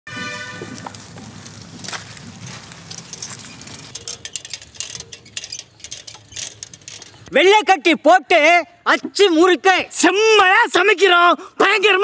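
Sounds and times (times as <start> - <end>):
footsteps through grass: 0.3 - 3.9
sharp clicks and metallic clinks: 2.8 - 7.3.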